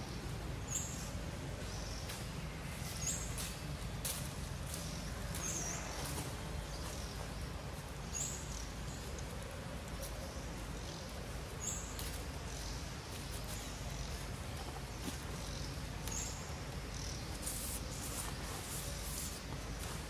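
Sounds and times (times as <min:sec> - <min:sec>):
light crackles: 0:02.0 - 0:20.0.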